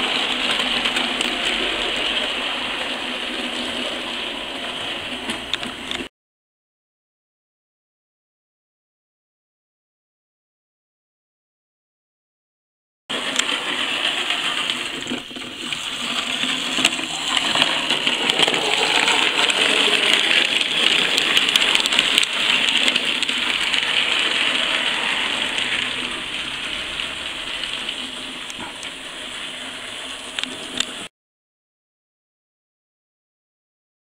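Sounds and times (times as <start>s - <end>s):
model train whirring on track: 0.0s - 6.1s, 13.1s - 31.1s.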